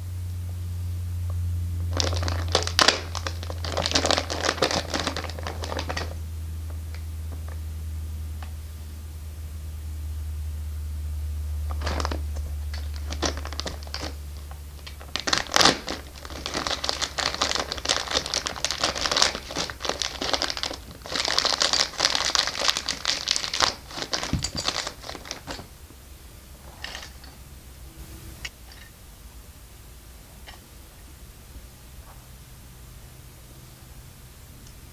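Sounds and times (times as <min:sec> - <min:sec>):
low hum: 0:00.0 - 0:34.9
plastic bag crinkling: 0:01.9 - 0:06.2, 0:11.7 - 0:25.8.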